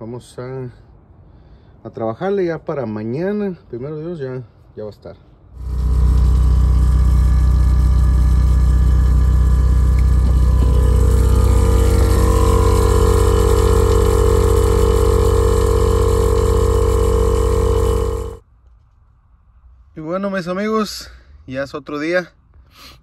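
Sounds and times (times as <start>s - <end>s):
air compressor humming: 5.6s - 18.4s.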